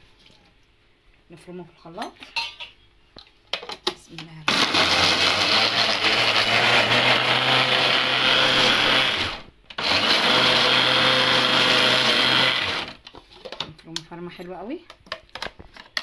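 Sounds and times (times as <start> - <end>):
food processor chopping: 4.5 - 13.0.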